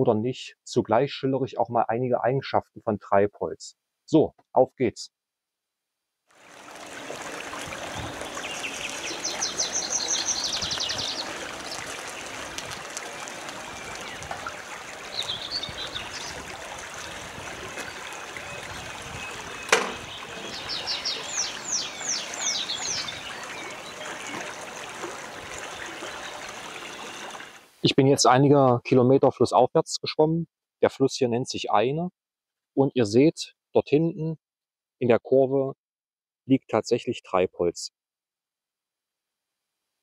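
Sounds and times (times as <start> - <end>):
river flowing: 6.4 - 27.8
songbird trilling: 7.8 - 11.9, 13.2 - 16.4, 17.8 - 24.4
sharp knock: 19.7 - 20.0.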